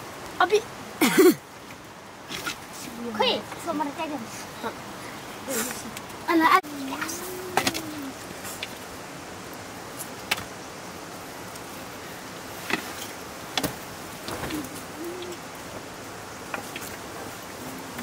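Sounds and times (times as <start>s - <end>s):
bird cooing: 7.1s - 8.2s, 14.3s - 15.7s, 17.4s - 18.0s.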